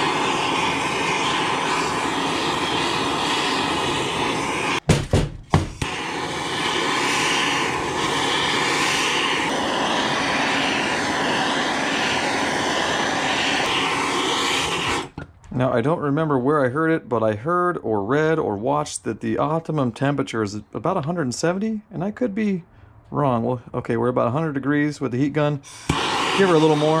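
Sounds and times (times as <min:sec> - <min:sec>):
torch flame rushing: 0:00.0 - 0:04.9, 0:05.6 - 0:15.4, 0:25.7 - 0:27.0
knocks: 0:04.9 - 0:05.8.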